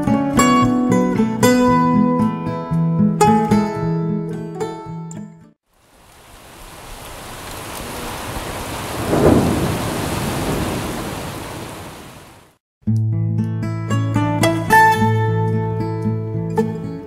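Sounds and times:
heavy rain hiss: 0:05.7 - 0:12.6
thunder rumbling: 0:06.0 - 0:12.6.

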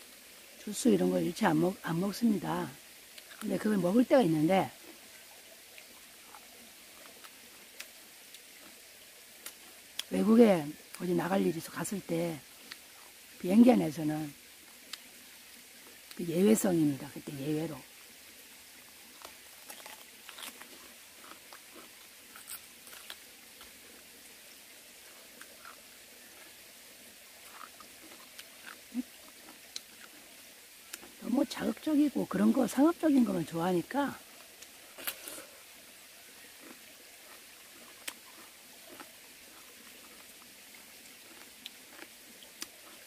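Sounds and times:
faint hiss: 0:00.0 - 0:43.0
biting and chewing melon: 0:19.2 - 0:23.8, 0:27.4 - 0:30.3, 0:36.5 - 0:43.0.

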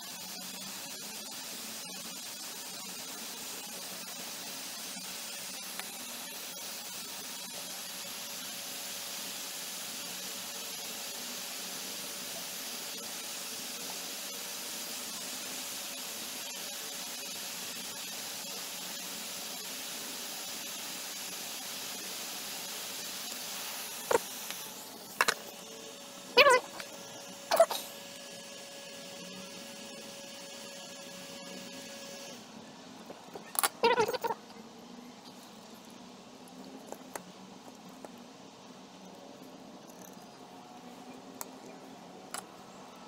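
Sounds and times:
hot air station hissing: 0:00.0 - 0:32.6, 0:33.4 - 0:34.4.

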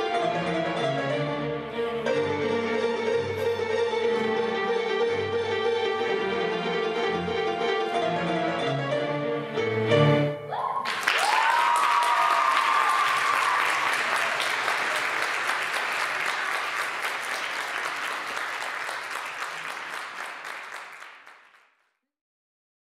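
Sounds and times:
music: 0:00.0 - 0:10.8
audience applauding: 0:10.7 - 0:21.8.

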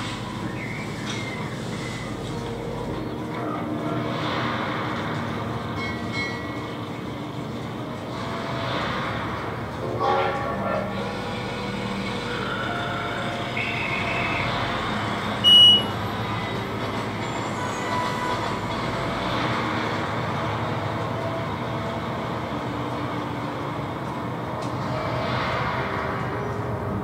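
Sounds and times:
elevator rushing hum: 0:00.0 - 0:27.0
loud high beep: 0:15.4 - 0:15.9.

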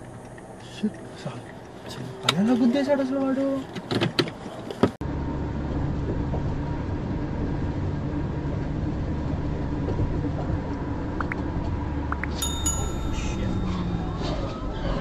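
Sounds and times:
car road and engine noise: 0:00.0 - 0:15.0
sharp sound with high ringing: 0:12.3 - 0:14.5.

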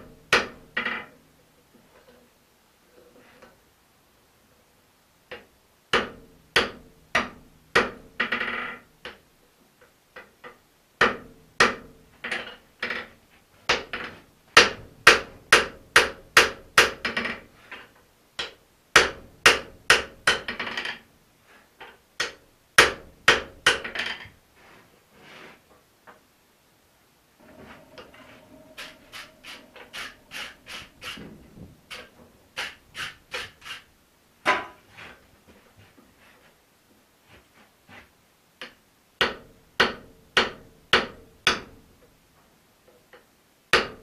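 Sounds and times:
anvil ringing: 0:27.4 - 0:32.1
hammer striking steel on anvil: 0:27.4 - 0:33.2.

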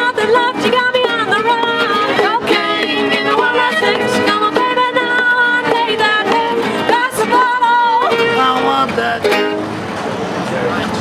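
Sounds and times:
woman singing: 0:00.0 - 0:08.4
fiddle playing: 0:00.0 - 0:09.7
cajon beat: 0:00.0 - 0:09.8
strummed acoustic guitars: 0:00.0 - 0:11.0.

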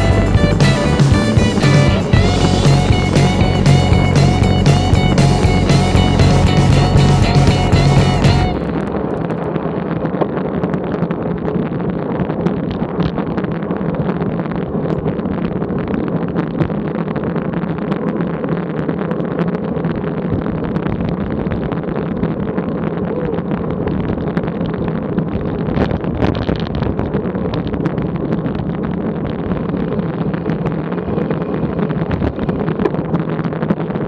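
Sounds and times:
wind rushing over microphone: 0:08.6 - 0:34.0.

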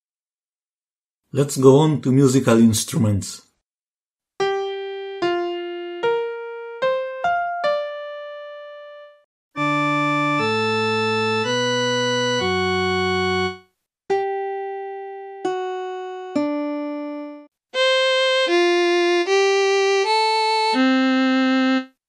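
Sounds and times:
held organ-like notes: 0:07.6 - 0:21.9.

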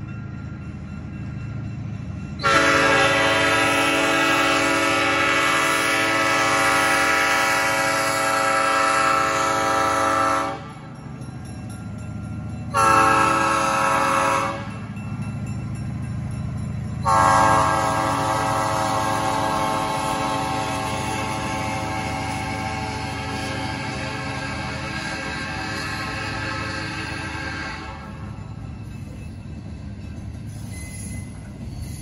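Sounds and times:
locomotive air horn blasts: 0:02.4 - 0:10.8, 0:12.7 - 0:14.8, 0:17.0 - 0:28.2.

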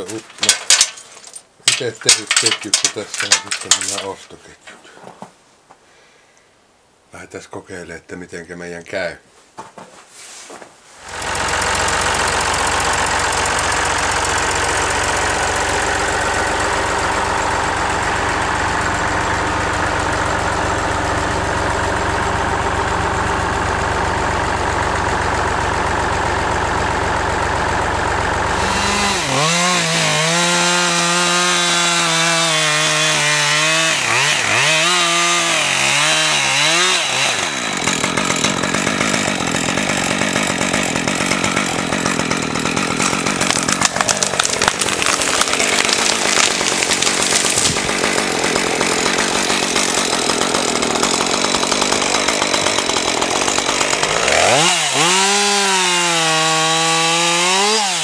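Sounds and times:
chainsaw revving and cutting wood: 0:00.0 - 0:04.3, 0:11.0 - 0:58.0
tractor engine idling: 0:00.0 - 0:04.6, 0:11.0 - 0:30.0, 0:37.1 - 0:54.6.

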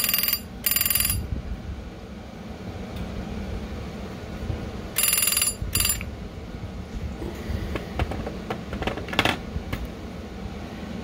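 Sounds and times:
telephone bell ringing: 0:00.0 - 0:01.3, 0:05.0 - 0:06.1.

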